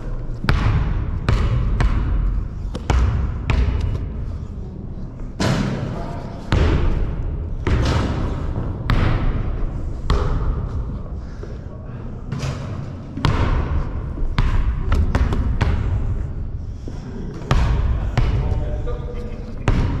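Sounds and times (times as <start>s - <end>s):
basketball bouncing on court floor: 0.4s - 4.2s, 6.5s - 10.9s, 13.2s - 16.2s, 17.5s - 18.6s, 19.7s - 20.0s.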